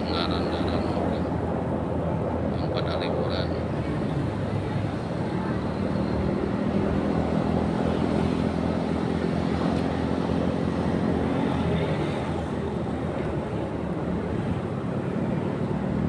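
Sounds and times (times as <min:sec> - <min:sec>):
road noise: 0:00.0 - 0:16.0.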